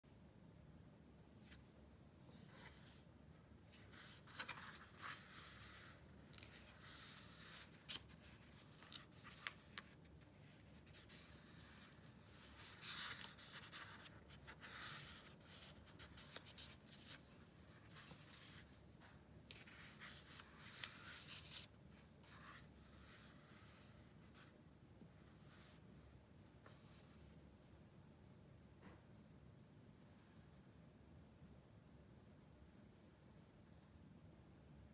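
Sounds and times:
pages turning: 0:02.3 - 0:03.1, 0:03.7 - 0:24.5.

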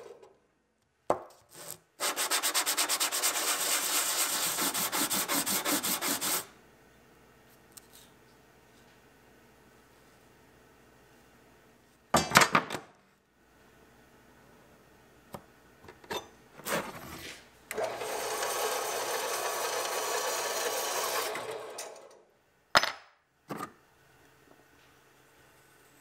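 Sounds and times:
scraping strokes: 0:01.5 - 0:06.5.

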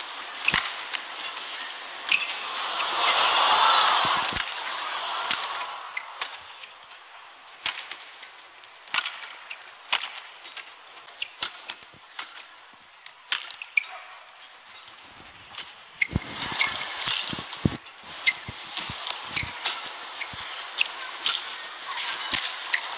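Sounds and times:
crowd noise: 0:00.0 - 0:22.9
rackets striking shuttlecock: 0:04.1 - 0:07.0
shoe squeaks on court: 0:19.3 - 0:19.6.

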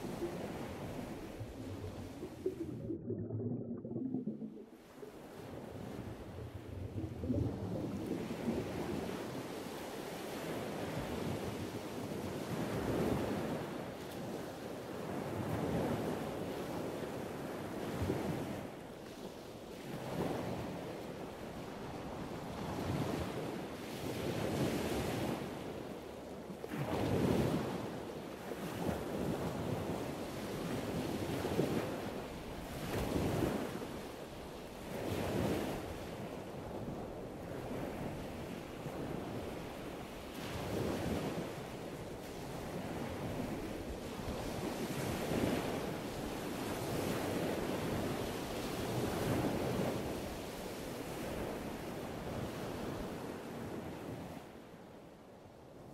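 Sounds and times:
ocean waves washing in: 0:00.0 - 0:09.8.

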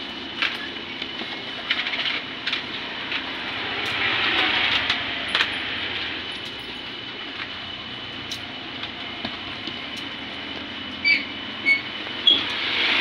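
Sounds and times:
rushing noise: 0:02.7 - 0:06.4.

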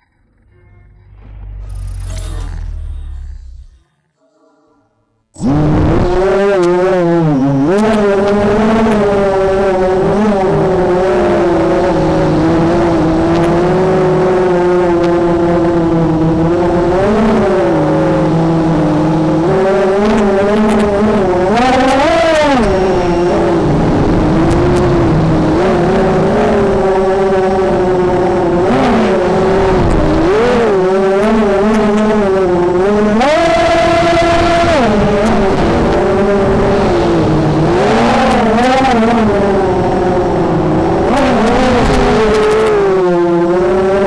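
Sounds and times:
drone motors whining: 0:00.0 - 0:06.8.

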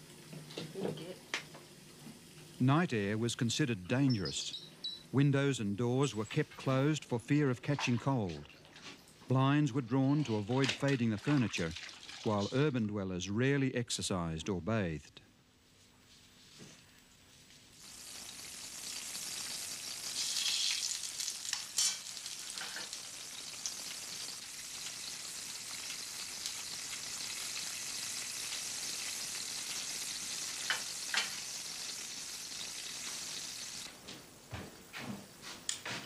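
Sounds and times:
food sizzling: 0:00.0 - 0:02.6, 0:17.7 - 0:34.0.

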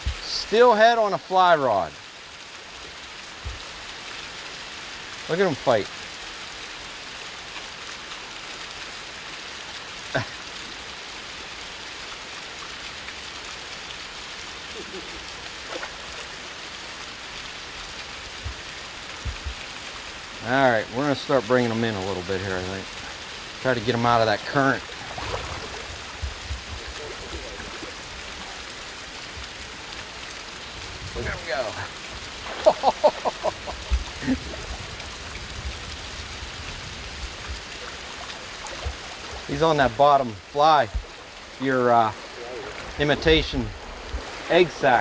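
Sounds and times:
creek water rushing: 0:00.0 - 0:45.0
low bumps underwater: 0:18.4 - 0:19.6, 0:23.8 - 0:30.0, 0:32.1 - 0:44.6.

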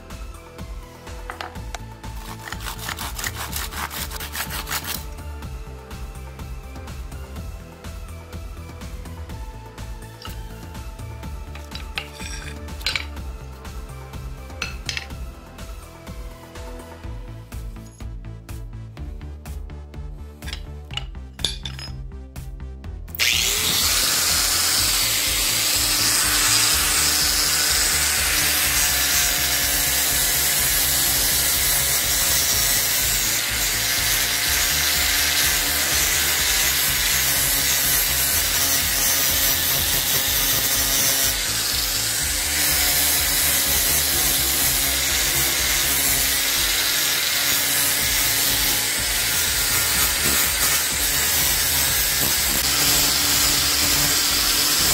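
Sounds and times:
angle grinder grinding metal: 0:01.2 - 0:05.2, 0:10.1 - 0:13.2, 0:23.2 - 0:54.9.

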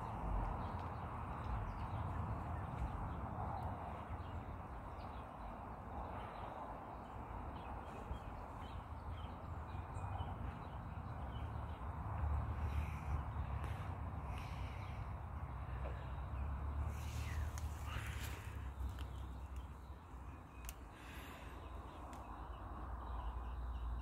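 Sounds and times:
low rumble and hiss: 0:07.6 - 0:24.0.

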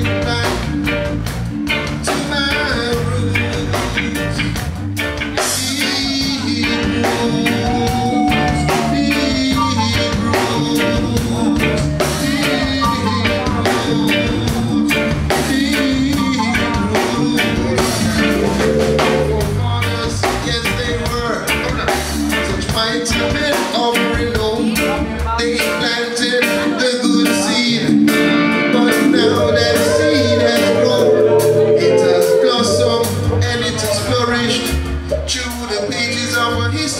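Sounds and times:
man singing into microphone: 0:00.0 - 0:00.9, 0:01.9 - 0:04.6, 0:05.4 - 0:36.9
drum kit: 0:00.0 - 0:25.8
bass guitar: 0:00.0 - 0:36.9
electric guitar: 0:00.0 - 0:36.9.

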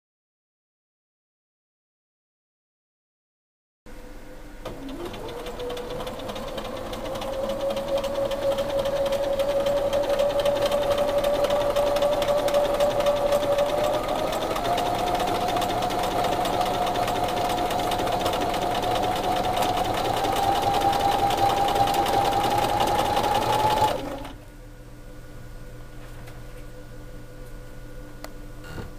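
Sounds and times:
sewing machine stitching: 0:04.7 - 0:24.4.

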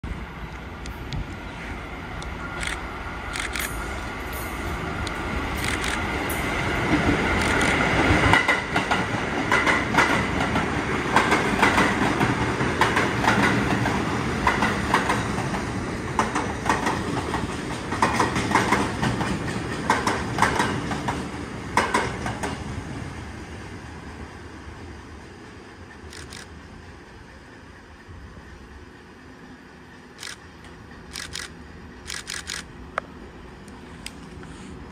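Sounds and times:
subway train passing: 0:00.0 - 0:34.9
wheels clacking over rail joints: 0:02.6 - 0:22.7.

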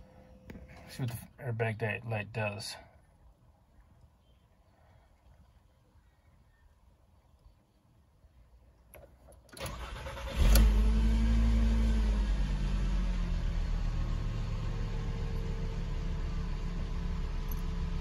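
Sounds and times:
ignition click: 0:09.0 - 0:11.0
car engine starting and idling: 0:09.0 - 0:18.0.

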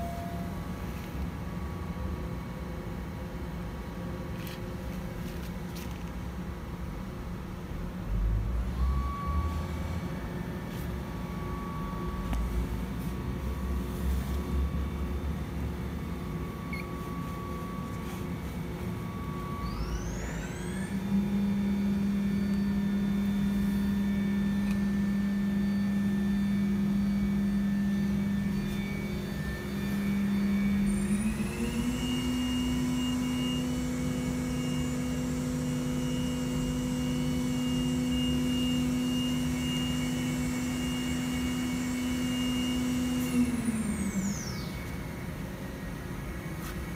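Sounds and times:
electric motor whining: 0:19.1 - 0:25.6.

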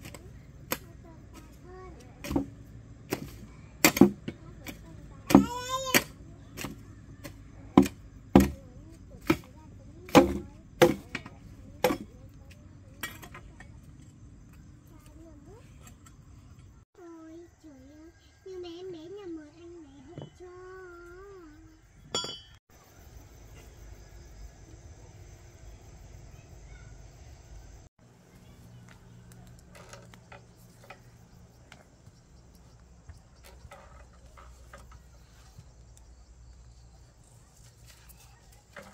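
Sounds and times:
chopping strikes: 0:03.1 - 0:08.6, 0:10.1 - 0:11.2.

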